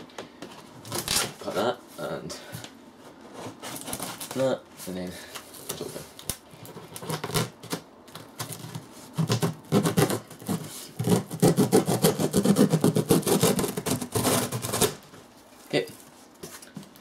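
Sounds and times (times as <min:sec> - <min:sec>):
hands scraping cardboard box: 0:03.2 - 0:04.4, 0:08.4 - 0:15.0
packing tape crackling: 0:05.6 - 0:15.0.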